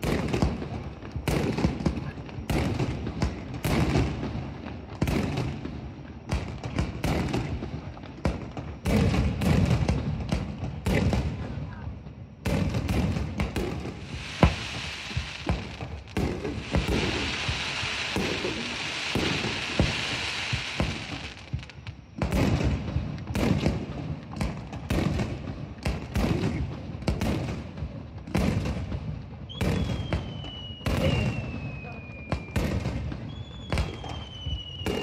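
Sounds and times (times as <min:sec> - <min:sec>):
fireworks bangs: 0:00.0 - 0:11.8, 0:12.4 - 0:35.0
steady hiss: 0:13.4 - 0:23.9.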